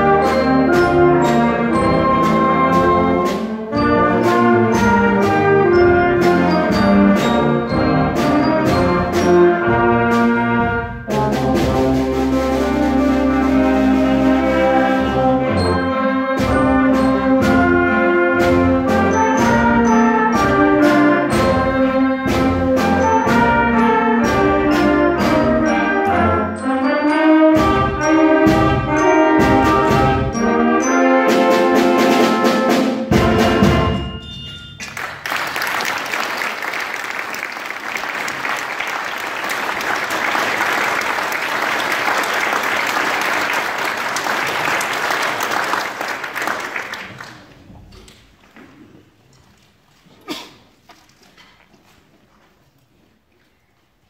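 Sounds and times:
wind band playing: 0:00.0 - 0:47.2
percussion hits: 0:27.1 - 0:36.0
audience applauding: 0:34.8 - 0:47.7.

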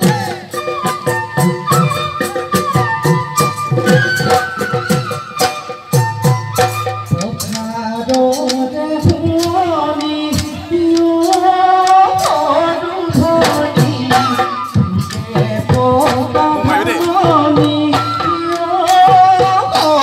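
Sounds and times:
person singing folk melody: 0:16.3 - 0:17.7
quick steady drumbeat: 0:16.4 - 0:17.5.

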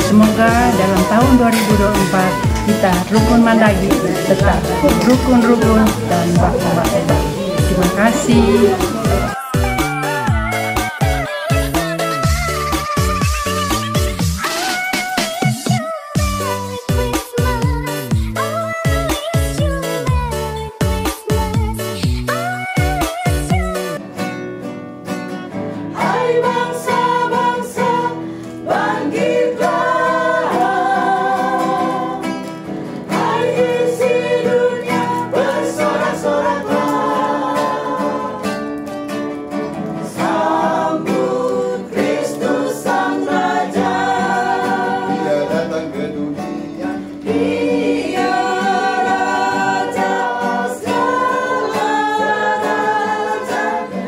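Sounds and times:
women singing together: 0:00.0 - 0:12.5, 0:26.0 - 0:32.4, 0:33.0 - 0:38.6, 0:40.0 - 0:46.1, 0:46.8 - 0:54.0
acoustic guitar: 0:00.0 - 0:54.0.

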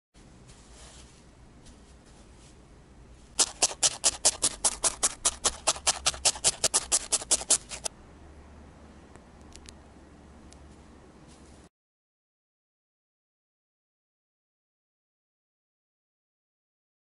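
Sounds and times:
felting needle poking wool: 0:03.4 - 0:07.9.

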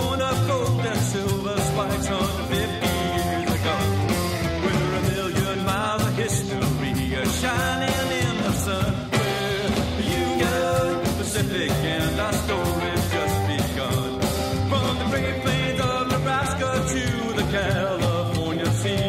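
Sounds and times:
rockabilly band music: 0:00.0 - 0:19.0
steady drum beat: 0:00.0 - 0:19.0.

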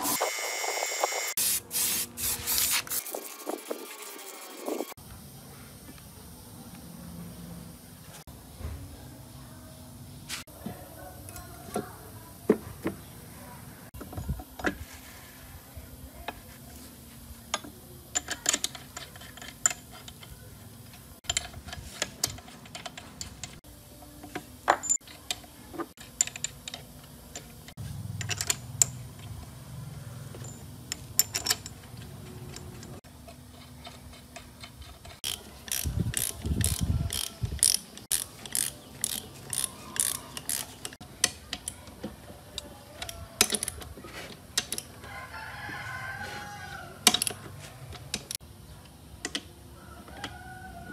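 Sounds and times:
socket ratchet clicking rapidly: 0:34.2 - 0:41.0.

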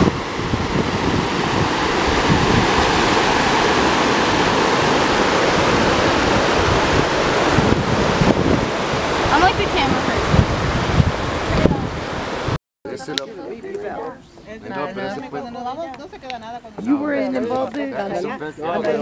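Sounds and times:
river rushing over rocks: 0:00.0 - 0:12.6
wind buffeting microphone: 0:00.0 - 0:12.6.

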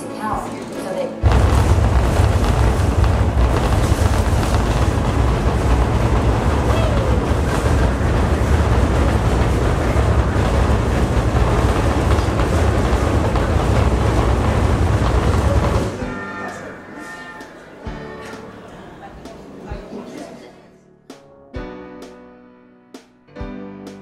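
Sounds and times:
deep rumble: 0:01.2 - 0:16.0
rattling: 0:01.2 - 0:16.0.

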